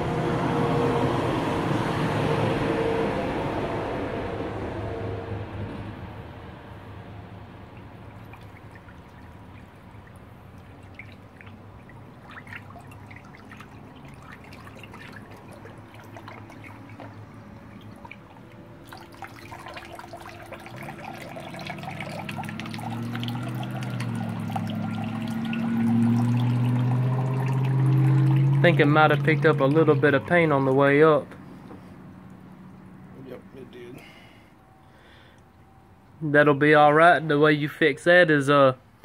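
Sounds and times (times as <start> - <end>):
low hum: 0.0 - 30.6
water splashing in a tub: 7.4 - 33.1
water pouring and trickling: 7.6 - 31.6.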